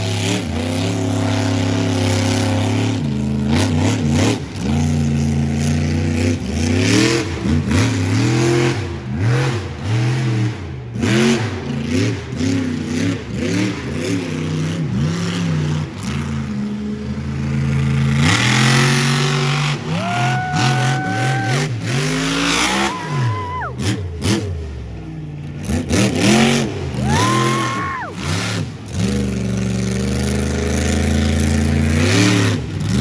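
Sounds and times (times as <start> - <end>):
monster truck engine revving: 0.0 - 33.0.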